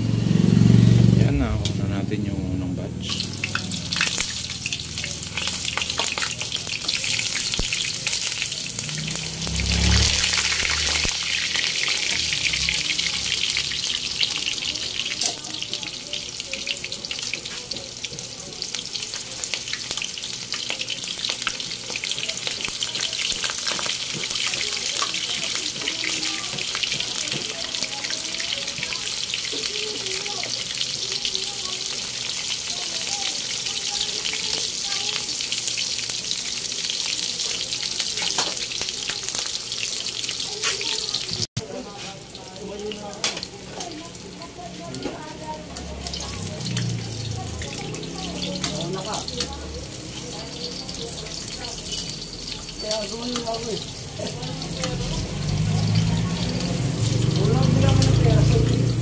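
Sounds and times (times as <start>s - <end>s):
food sizzling in hot oil: 0.0s - 1.2s, 3.0s - 59.0s.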